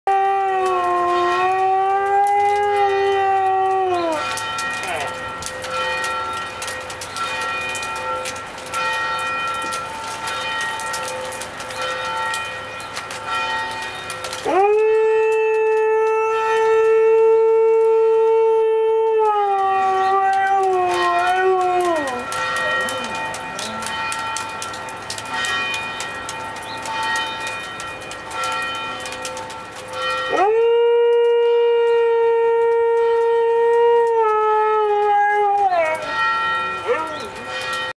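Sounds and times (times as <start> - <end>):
dog howling: 0.1 - 4.4, 14.4 - 23.1, 30.3 - 36.2, 36.8 - 37.3
church bells pealing: 0.1 - 18.4, 19.0 - 37.9
rain dripping ticks: 0.1 - 37.9.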